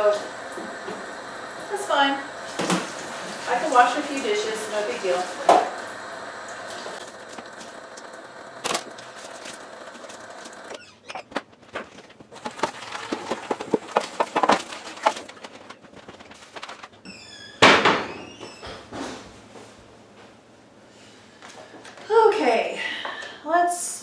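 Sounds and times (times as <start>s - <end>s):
tap water running into sink: 0.0s - 8.3s.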